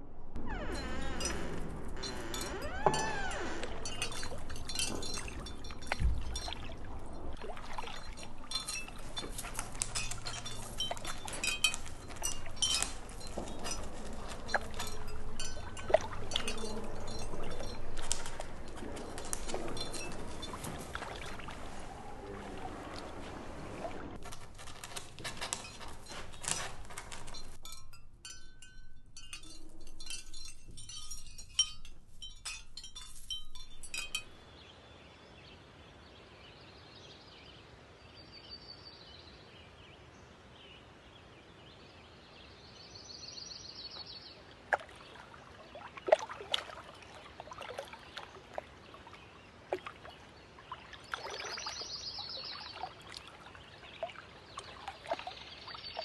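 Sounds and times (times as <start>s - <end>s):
birds trilling chirps: 46.9s - 56.0s.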